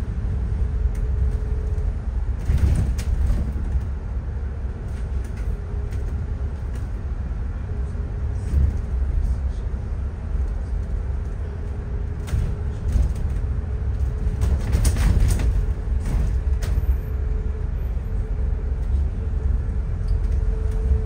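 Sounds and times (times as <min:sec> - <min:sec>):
bus engine and road rumble: 0:00.0 - 0:21.0
rattles and knocks: 0:02.4 - 0:03.9, 0:12.2 - 0:17.0.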